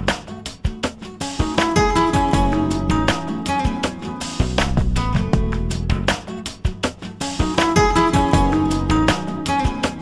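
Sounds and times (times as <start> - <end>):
plucked guitar notes: 0.0 - 10.0.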